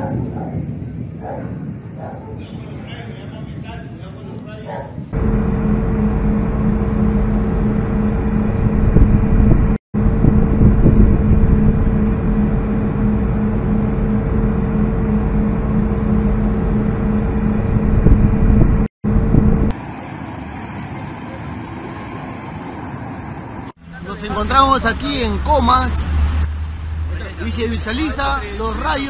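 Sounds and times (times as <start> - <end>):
boat engine rumbling: 4.9 - 19.8, 23.7 - 29.0.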